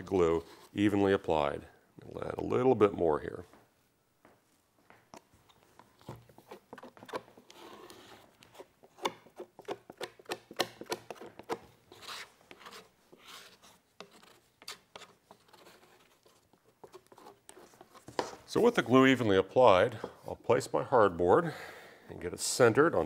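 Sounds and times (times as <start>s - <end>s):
glue spreader scraping: 5.5s - 18.6s.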